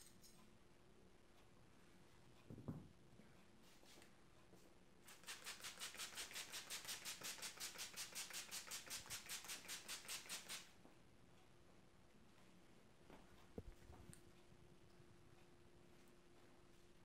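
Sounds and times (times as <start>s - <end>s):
spray bottle hissing: 5.1s - 10.7s.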